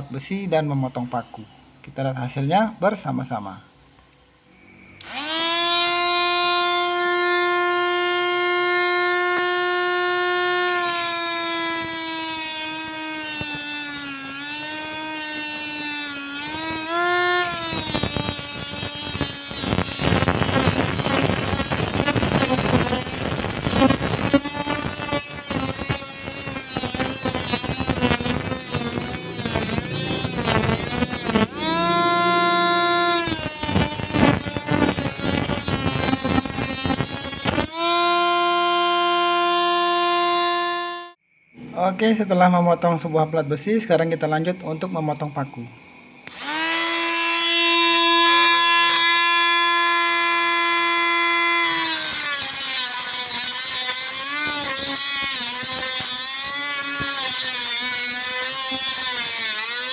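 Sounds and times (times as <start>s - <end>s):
grinder motor whine: 5.0s - 41.2s, 46.2s - 59.9s
disc grinding steel: 10.5s - 37.7s, 51.6s - 59.9s.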